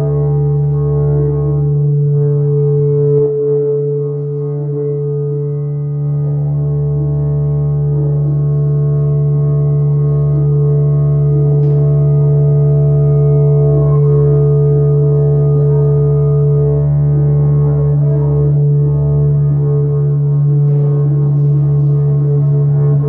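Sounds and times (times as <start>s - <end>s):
electronic music drone: 0.0s - 23.0s.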